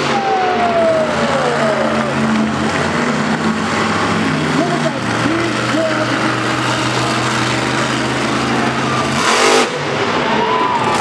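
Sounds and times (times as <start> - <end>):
monster truck engine revving: 0.0 - 11.0.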